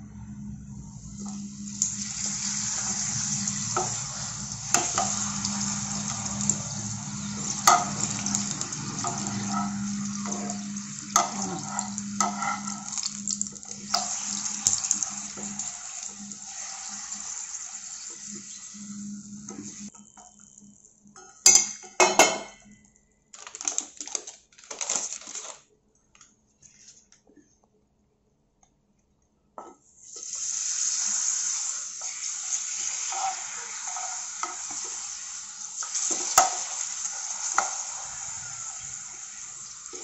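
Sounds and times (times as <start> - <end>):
low steady hum: 0.0 - 16.7
frying in hot oil sizzling: 0.9 - 19.9, 30.0 - 40.0.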